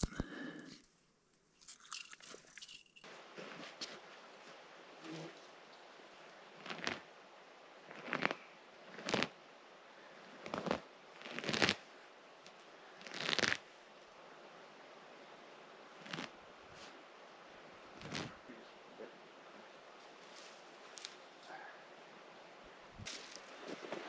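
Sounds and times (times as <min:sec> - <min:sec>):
scraping at soil: 0:23.0 - 0:24.0.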